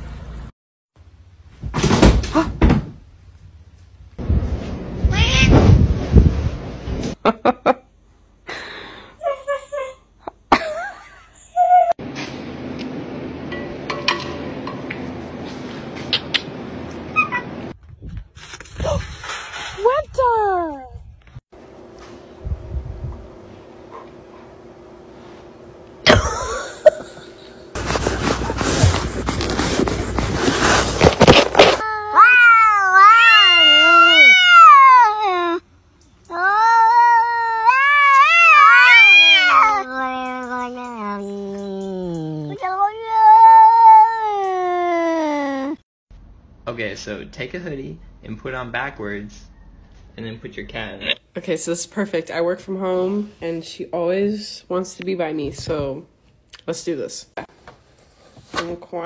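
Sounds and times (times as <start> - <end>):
cats yowling: 31.8 - 35.6, 36.3 - 45.6.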